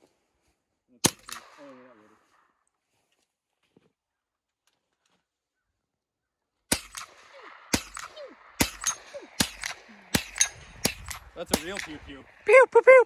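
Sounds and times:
rifle shots: 1.0s - 2.2s, 6.7s - 12.6s.

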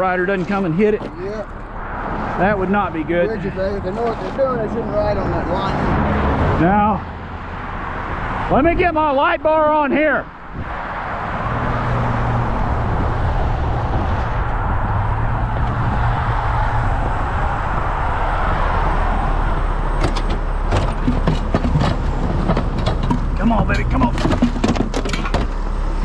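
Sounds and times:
highway traffic noise: 0.0s - 26.0s
gear clanking in metal compartment: 19.9s - 26.0s.

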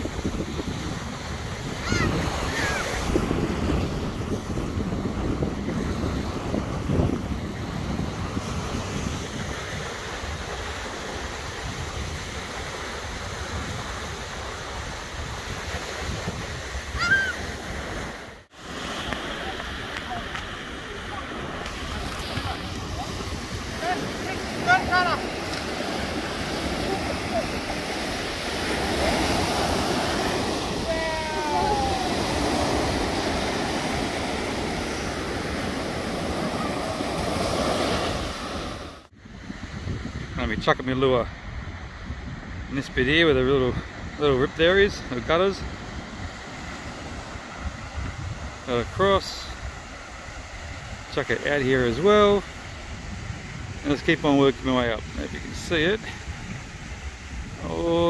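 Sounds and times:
surf washing onto beach: 0.0s - 58.0s
wind buffeting microphone: 0.0s - 58.0s.

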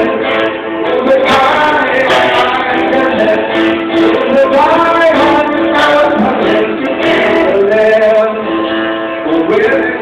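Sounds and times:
acoustic guitar: 0.0s - 10.0s
man singing into a microphone: 0.0s - 10.0s.

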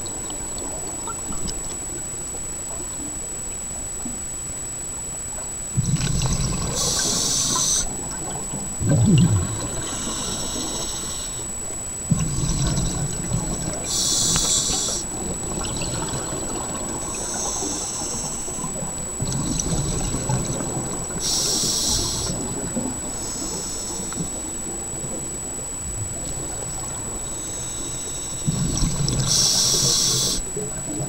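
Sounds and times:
bubbling exhaled air: 5.8s - 11.5s, 12.1s - 25.2s, 26.0s - 30.7s
regulator hissing inhalations: 6.7s - 7.9s, 9.7s - 11.5s, 13.8s - 15.1s, 17.1s - 18.8s, 21.2s - 24.5s, 27.2s - 30.5s.

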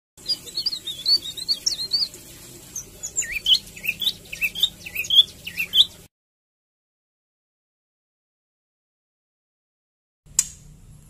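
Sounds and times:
bird chirping: 0.2s - 6.1s.

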